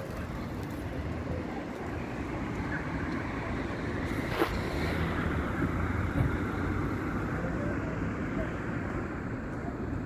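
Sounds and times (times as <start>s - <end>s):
city traffic rumble: 0.0s - 10.0s.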